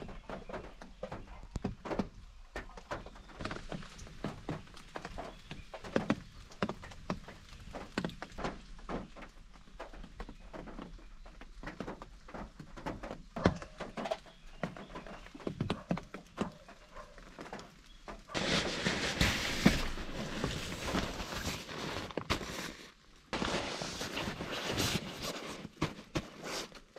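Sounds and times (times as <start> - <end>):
steady rustling hiss: 17.4 - 26.9
camping gear knocking: 18.3 - 22.7.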